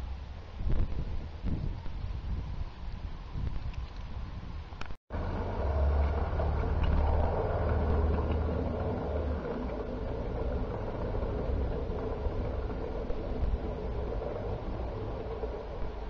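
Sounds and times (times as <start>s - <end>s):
model train wheels rumbling on rail: 5.1s - 16.0s
motor hum: 5.1s - 16.0s.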